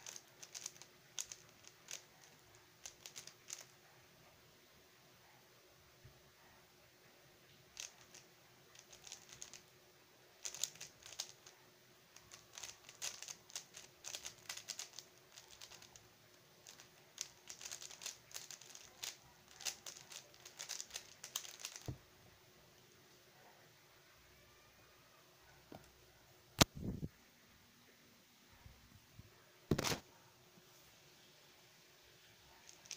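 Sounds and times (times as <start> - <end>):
puzzle cube plastic clicking: 0.0 - 3.7, 7.7 - 9.6, 10.4 - 11.5, 12.2 - 16.0, 16.6 - 22.0, 32.7 - 32.9.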